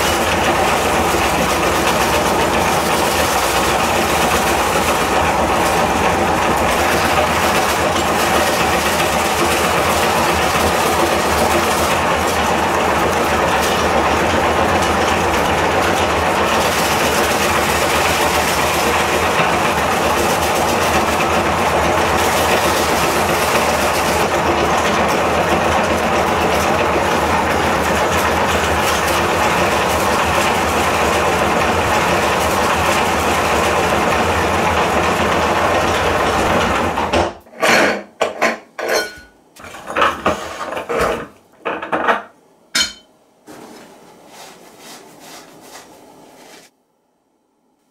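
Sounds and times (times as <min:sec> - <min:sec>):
electric meat grinder motor hum: 0:00.0 - 0:37.2.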